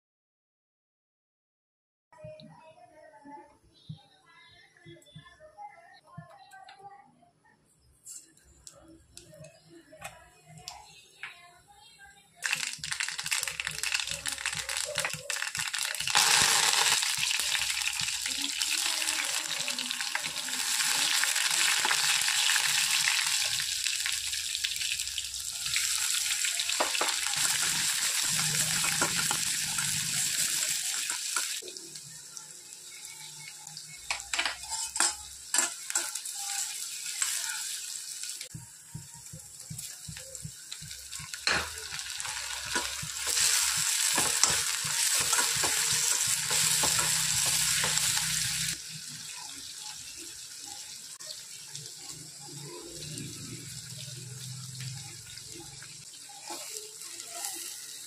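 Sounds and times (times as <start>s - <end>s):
oil sizzling in a pan: 12.4s - 58.0s.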